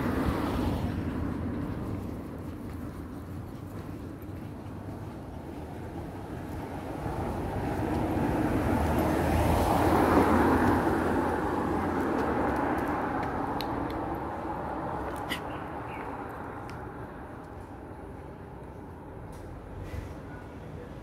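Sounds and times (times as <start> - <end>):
vehicle passing by: 4.6 - 21.0.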